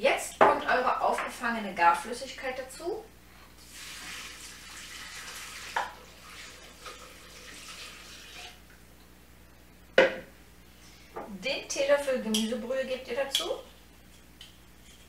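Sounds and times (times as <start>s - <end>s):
liquid pouring into steel bowl: 3.7s - 8.6s.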